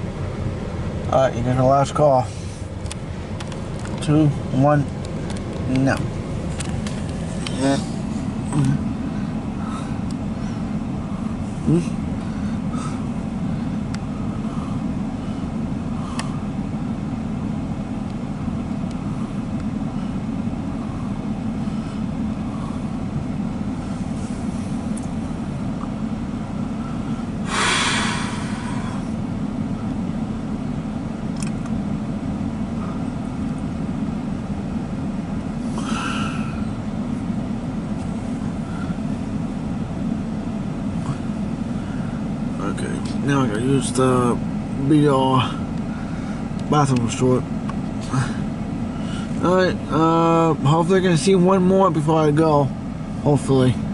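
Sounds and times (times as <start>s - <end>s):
hiss: 27.5s - 29.0s.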